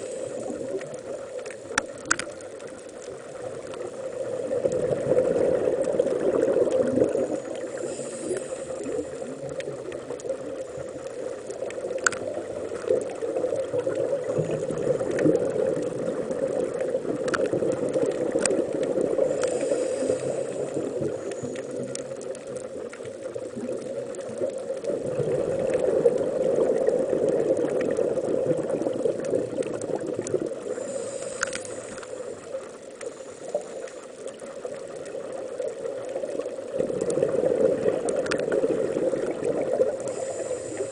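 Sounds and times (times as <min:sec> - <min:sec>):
regulator breathing hiss: 0:00.0 - 0:00.8, 0:07.2 - 0:09.3, 0:19.2 - 0:21.8, 0:30.6 - 0:34.2, 0:40.0 - 0:40.9
muffled underwater rush: 0:00.0 - 0:40.9.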